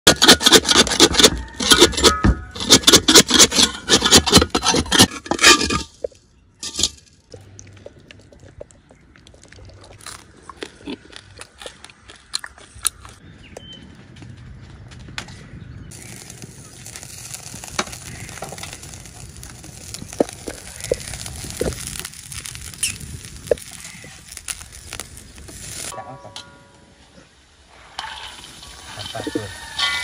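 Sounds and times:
metal spatula scraping a wok: 0.1s - 7.0s, 27.7s - 30.0s.

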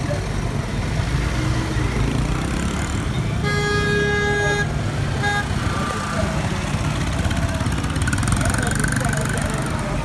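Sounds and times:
low traffic engine rumble: 0.0s - 10.0s
vehicle horn honking: 3.4s - 5.9s.

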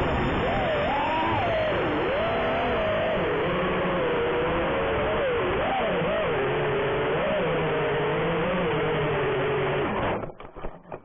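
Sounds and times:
drone motors whining: 0.0s - 10.4s
brief crackles: 9.9s - 11.0s.

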